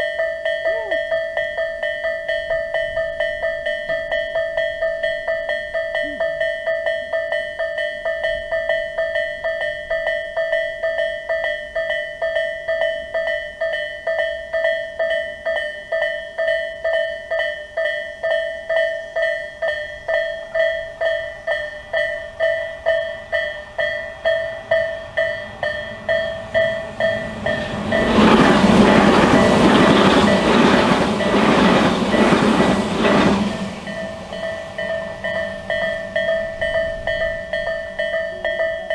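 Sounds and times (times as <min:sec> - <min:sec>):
level crossing warning bell: 0:00.0 - 0:38.9
train passing: 0:12.9 - 0:38.9.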